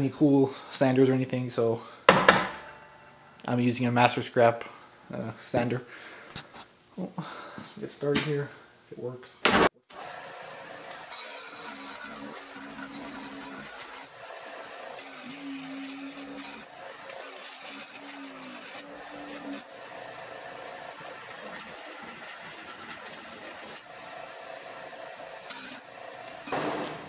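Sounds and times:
sander motor humming: 9.9s - 27.0s
steel grinding against sanding disc: 10.0s - 26.6s.

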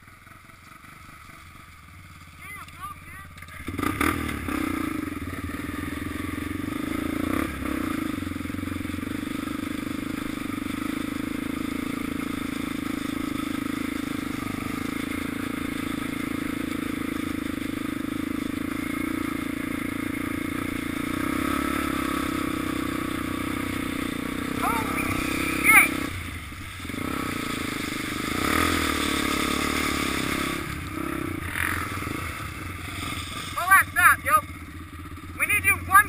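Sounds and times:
quad engine running: 0.0s - 36.0s
tires on gravel and leaves: 0.0s - 36.0s.

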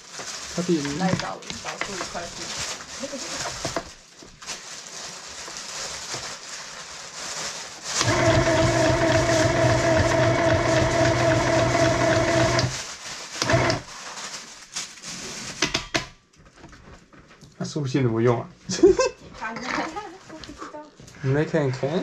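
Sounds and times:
sewing machine stitching: 8.0s - 12.7s, 13.4s - 13.9s.

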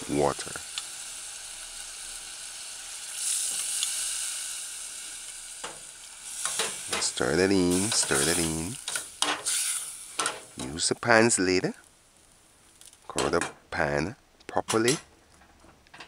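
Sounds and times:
food sizzling in pan: 0.0s - 13.1s
person speaking: 7.0s - 8.8s, 10.6s - 11.8s, 13.1s - 15.1s.

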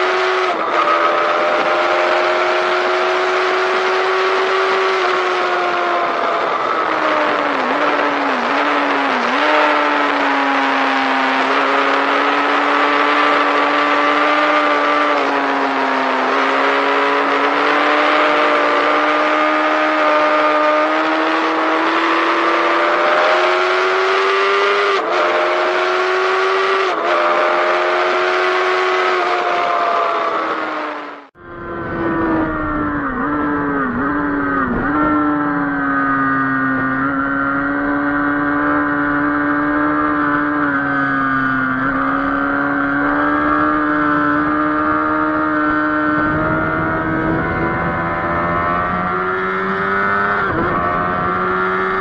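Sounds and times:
motorcycle engine at high revs: 0.0s - 52.0s
wind rush: 31.4s - 35.2s, 46.1s - 49.8s.

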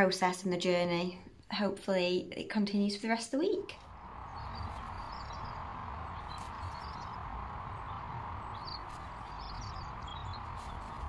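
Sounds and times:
low rumble: 3.8s - 11.0s
faint bird chirps: 3.9s - 11.0s.

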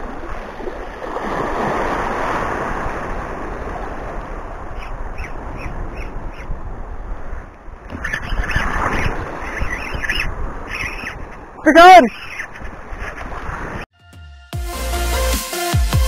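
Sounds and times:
sea washing against rocks: 0.0s - 5.6s
wind on microphone: 0.0s - 11.6s.

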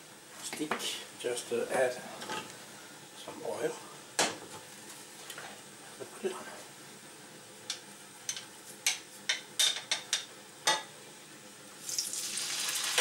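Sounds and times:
meat sizzling in oil: 11.8s - 13.0s.

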